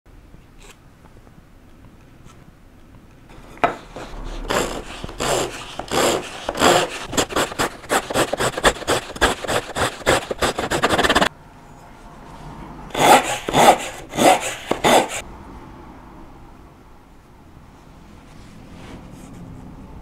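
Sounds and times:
handsaw sawing wood: 0:03.4 - 0:11.3, 0:12.9 - 0:15.2.

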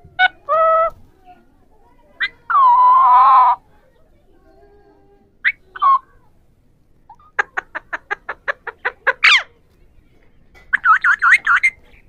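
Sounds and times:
parakeet squawk: 0:07.4 - 0:09.5, 0:10.7 - 0:11.8
parakeets calling: 0:10.6 - 0:12.0.

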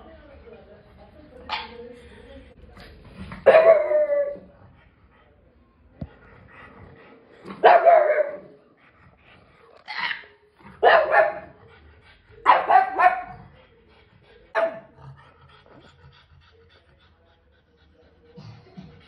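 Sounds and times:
dog barking: 0:03.4 - 0:04.4, 0:07.6 - 0:08.5, 0:10.0 - 0:11.5, 0:12.4 - 0:13.4, 0:14.6 - 0:14.9.

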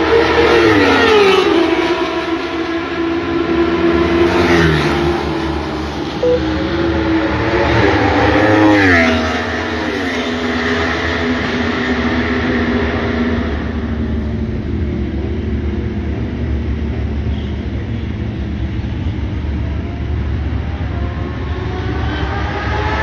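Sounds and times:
racing motorcycle engines revving: 0:06.8 - 0:23.0.

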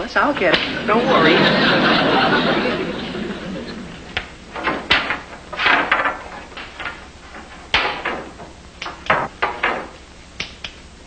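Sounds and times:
wooden boards knocking on workbench: 0:04.6 - 0:07.0, 0:07.7 - 0:10.0.

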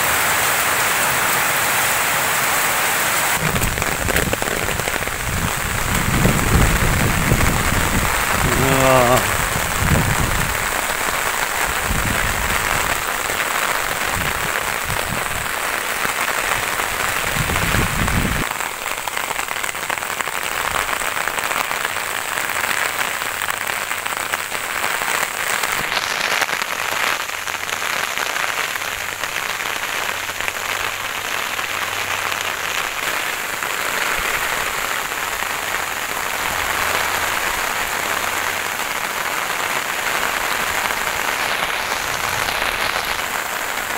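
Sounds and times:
heavy rain hissing: 0:00.0 - 0:43.9
wind buffeting microphone: 0:03.4 - 0:10.7, 0:11.7 - 0:13.0, 0:17.1 - 0:18.5.

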